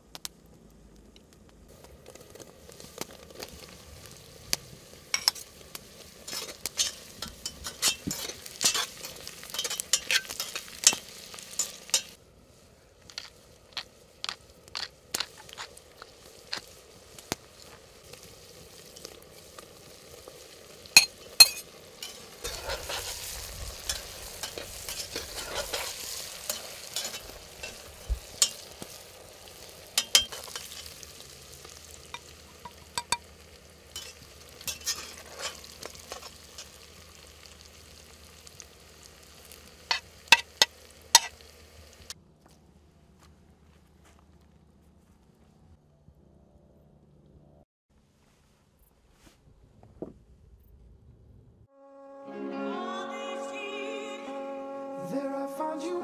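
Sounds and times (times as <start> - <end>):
food sizzling in a pan: 1.7 - 42.2.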